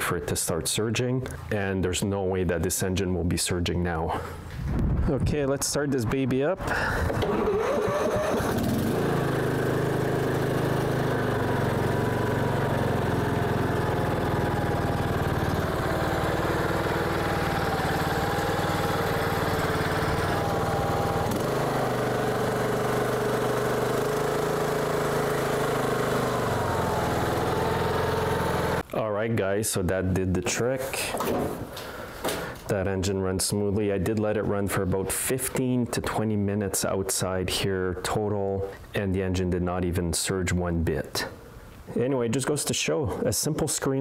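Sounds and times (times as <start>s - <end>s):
lawn tractor engine running: 6.8s - 28.8s.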